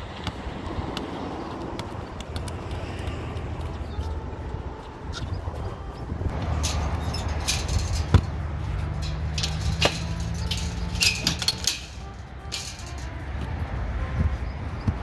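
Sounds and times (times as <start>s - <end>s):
padlock and gate latch clinking: 4.8s - 13.2s.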